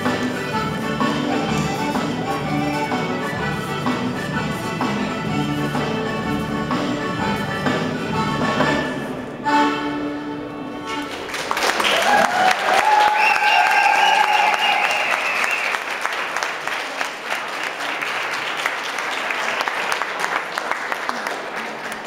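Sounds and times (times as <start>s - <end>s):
country dance tune: 0.0s - 11.3s
audience applause: 11.1s - 22.0s.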